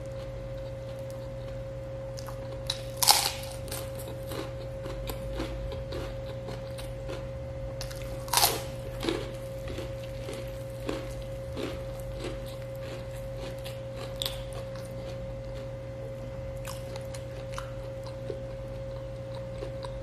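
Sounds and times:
crunching bites: 0.0s - 15.8s
chewing and mouth clicks: 0.0s - 20.0s
faint hum: 0.0s - 20.0s.

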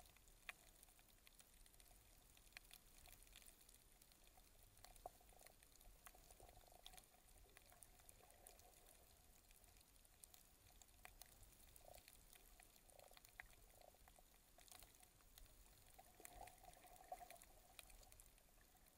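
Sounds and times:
faint underwater hiss: 0.0s - 18.9s.

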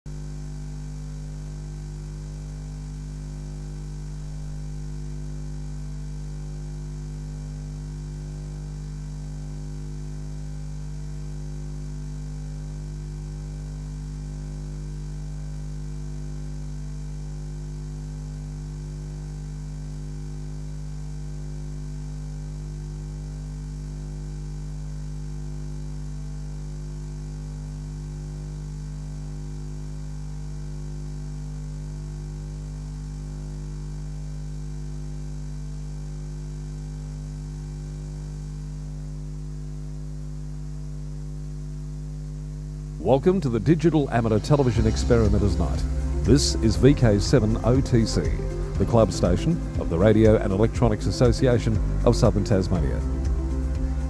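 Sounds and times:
electrical mains hum: 0.1s - 25.5s, 26.2s - 54.0s.

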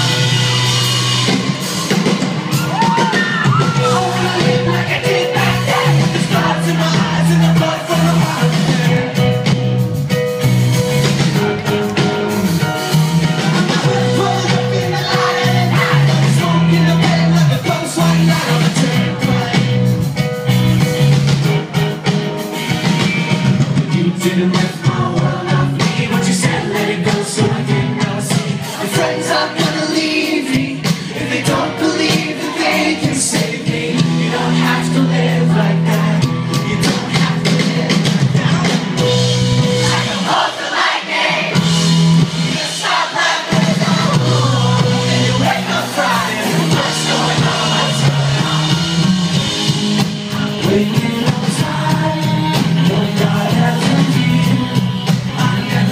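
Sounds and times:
live rock band playing: 0.0s - 55.9s
man singing into microphone: 13.7s - 19.7s, 23.8s - 39.0s, 50.3s - 55.9s.

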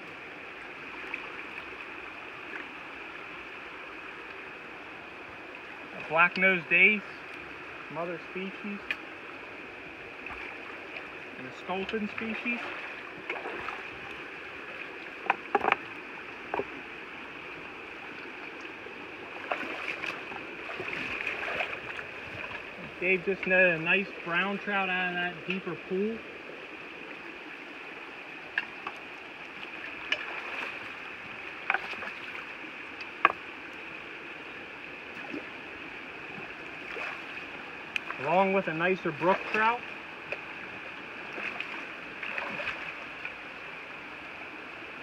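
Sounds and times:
stream running over rocks: 0.0s - 45.0s
sharp clicks and knocks: 15.2s - 15.8s.

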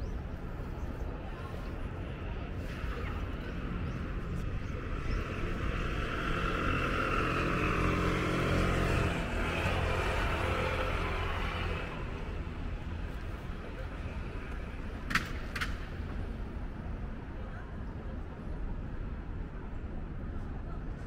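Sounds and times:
vehicle driving past: 5.0s - 13.0s.

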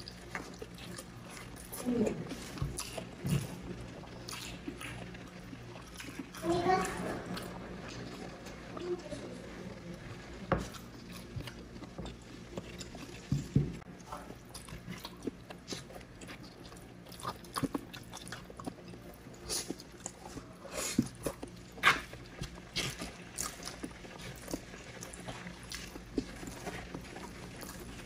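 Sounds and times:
people chewing: 0.0s - 28.0s.

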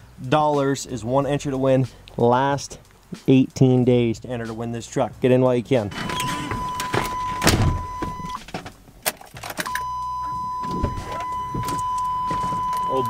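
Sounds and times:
knocks and rattles of handling: 5.9s - 9.8s
high-pitched electronic warning tone: 6.0s - 8.4s, 9.7s - 13.0s.

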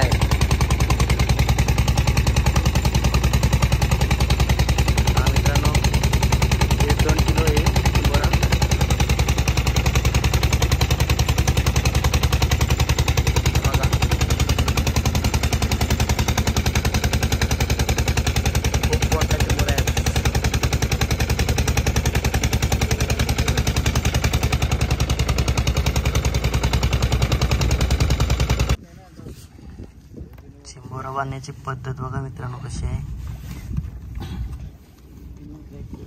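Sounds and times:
boat engine knocking steadily: 0.0s - 28.8s.

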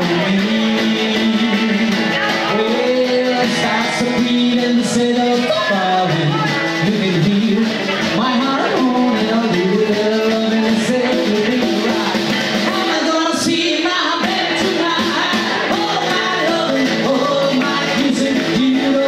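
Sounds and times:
electric guitar: 0.0s - 19.0s
person singing: 0.0s - 19.0s.

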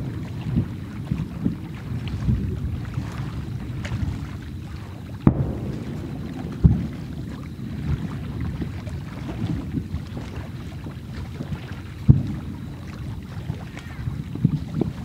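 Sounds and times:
continuous low rumble: 0.0s - 15.0s
firework booms: 5.2s - 9.7s.

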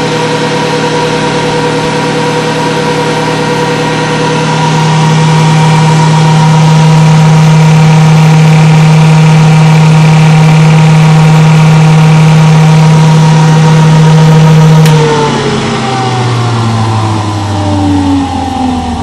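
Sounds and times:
electric motor humming: 2.2s - 15.8s.

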